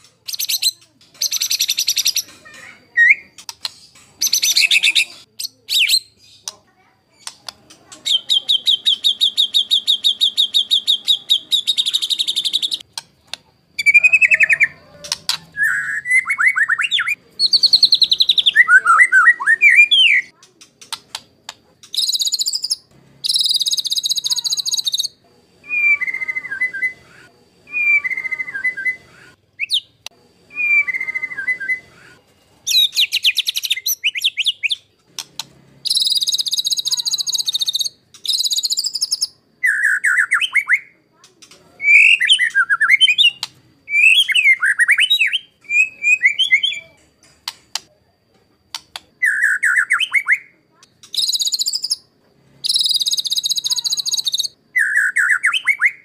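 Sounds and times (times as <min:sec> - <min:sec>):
bird harsh rasping calls: 0:00.0 - 0:06.6, 0:13.8 - 0:40.8, 0:49.2 - 0:56.0
bird whistling song phrases: 0:08.0 - 0:12.8, 0:13.8 - 0:20.3, 0:21.9 - 0:32.1, 0:32.7 - 0:34.9, 0:35.8 - 0:41.0, 0:41.8 - 0:47.0, 0:49.2 - 0:56.0.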